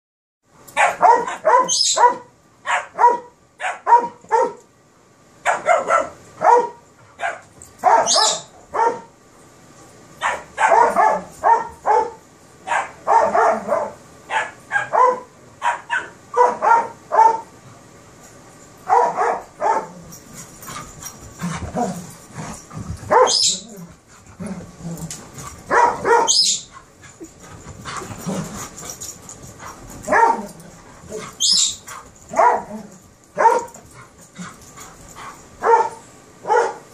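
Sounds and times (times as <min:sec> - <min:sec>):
dog barking: 0:00.8 - 0:04.6, 0:05.4 - 0:09.1, 0:10.2 - 0:17.5, 0:18.9 - 0:20.0, 0:23.1 - 0:23.6, 0:25.7 - 0:26.6, 0:30.1 - 0:30.5, 0:32.3 - 0:33.8, 0:35.6 - 0:36.9.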